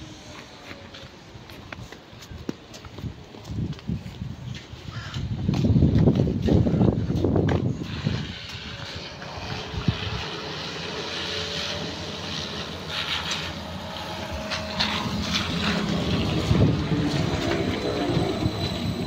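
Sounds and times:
tyre and road noise: 0.0 - 19.0
trolleybus electric motor whining: 6.7 - 19.0.

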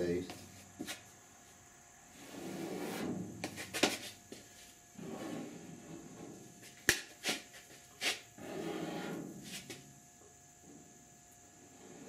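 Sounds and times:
spreader scraping body filler: 8.0 - 9.8.

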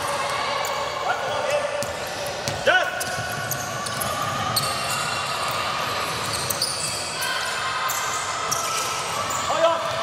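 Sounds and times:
basketball bouncing on court: 1.8 - 5.1
shoe squeaks: 2.9 - 5.6, 6.2 - 7.3.

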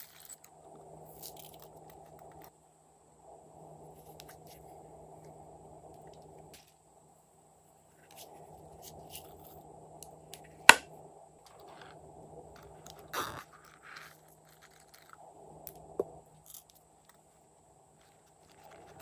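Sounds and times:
rustling scrape of sequins: 12.6 - 15.2.

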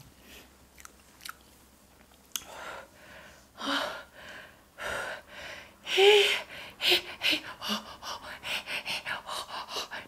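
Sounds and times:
wet chewing clicks: 0.7 - 2.5.

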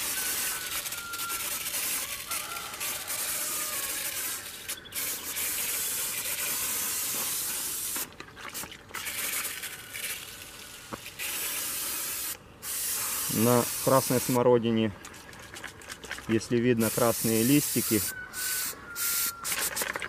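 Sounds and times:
pressure sprayer hissing: 0.0 - 8.1, 11.1 - 14.4, 16.8 - 19.9.

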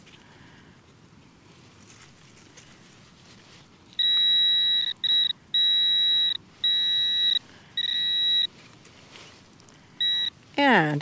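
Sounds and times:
metal detector alarm tone: 4.0 - 8.5, 10.0 - 10.4.

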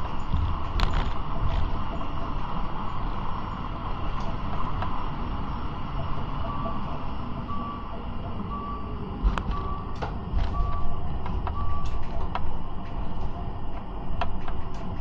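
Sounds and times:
electronic warning beeps: 0.0 - 15.0
tram rumble: 0.0 - 15.0.

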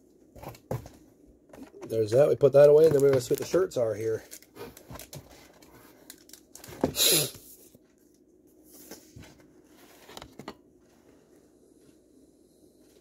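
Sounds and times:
packaging rustling: 2.5 - 6.9.

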